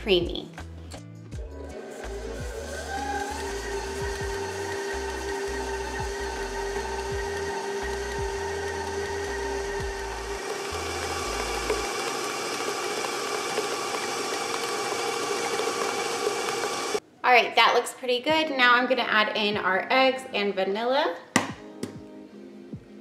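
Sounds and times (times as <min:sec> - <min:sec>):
stand mixer running: 0:01.4 - 0:17.0.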